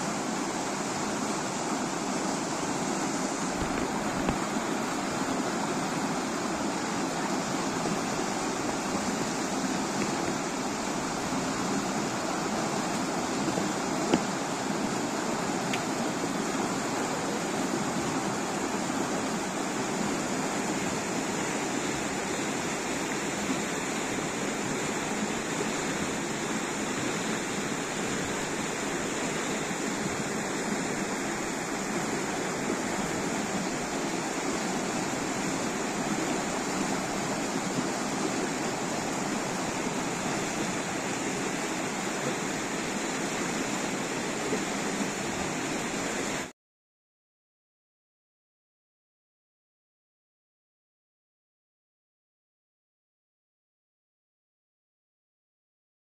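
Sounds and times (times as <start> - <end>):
river rushing over rapids: 0.0 - 46.5.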